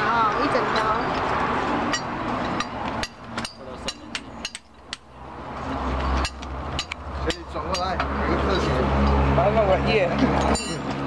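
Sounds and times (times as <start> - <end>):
steel chain links clinking: 10.4 - 10.9.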